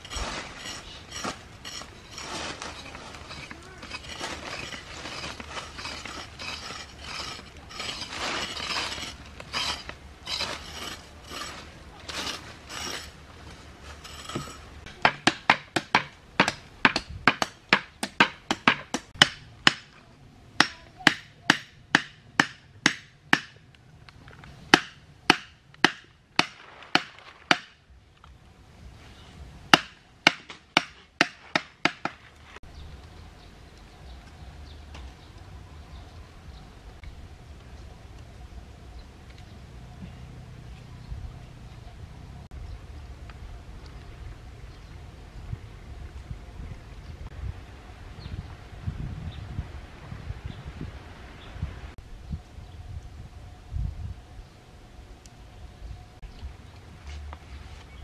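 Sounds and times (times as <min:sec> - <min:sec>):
scraping in dry soil: 0:00.0 - 0:14.9, 0:56.2 - 0:58.0.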